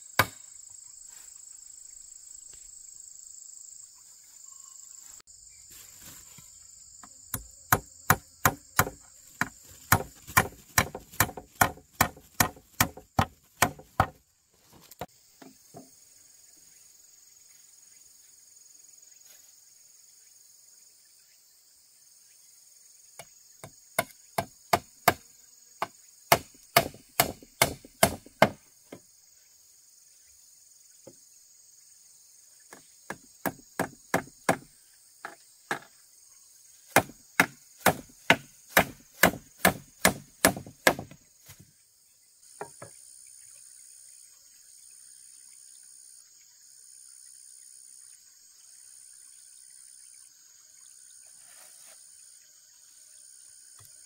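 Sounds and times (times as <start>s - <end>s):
insects droning: 0.0s - 54.0s
chopping wood: 0.2s - 0.4s, 7.3s - 15.9s, 23.2s - 25.2s, 25.8s - 29.0s, 32.7s - 35.9s, 36.9s - 41.6s.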